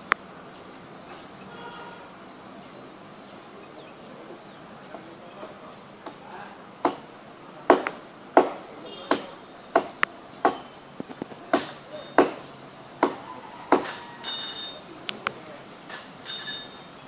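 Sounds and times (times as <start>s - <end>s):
blade chopping palm: 7.7s - 14.0s.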